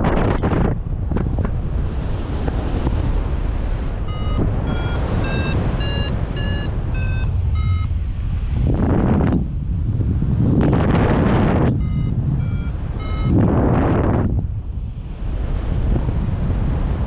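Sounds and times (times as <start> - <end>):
wind rushing over microphone: 0.0 - 17.0
variometer beeping pips: 4.0 - 8.0, 11.6 - 13.7.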